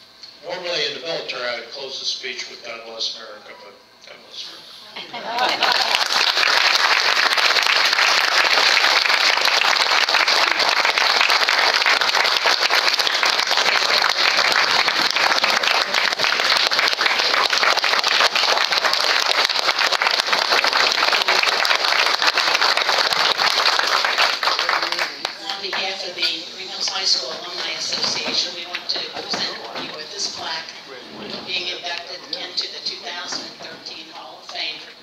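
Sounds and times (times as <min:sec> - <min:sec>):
audience applauding: 0:05.4 - 0:25.6.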